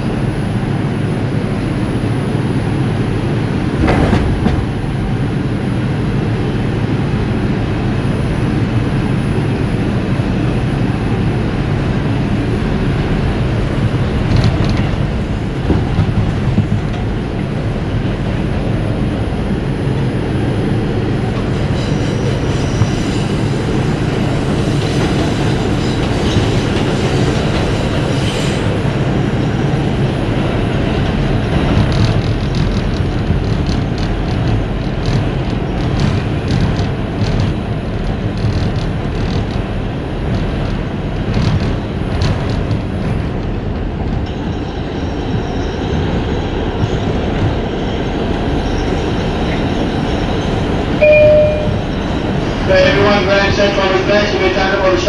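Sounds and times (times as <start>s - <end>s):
subway train wheels rumbling: 0.0s - 55.0s
rapid clicks over rail joints: 31.5s - 44.4s.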